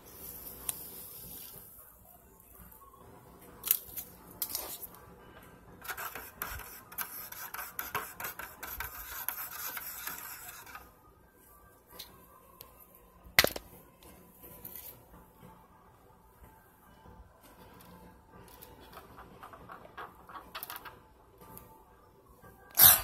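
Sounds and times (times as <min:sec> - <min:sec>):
metal spoon stirring in plastic cup: 0:05.8 - 0:10.9.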